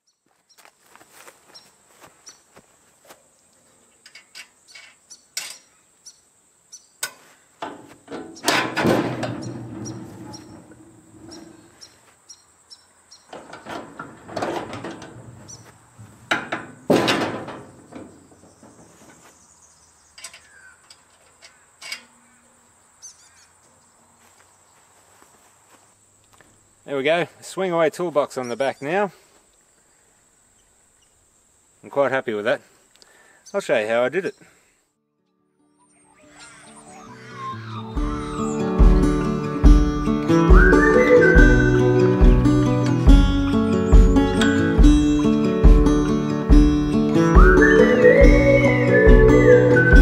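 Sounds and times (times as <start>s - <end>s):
metal toolbox frame rattling: 7.6s - 11.6s, 13.3s - 19.0s
high insect buzz: 35.8s - 40.6s.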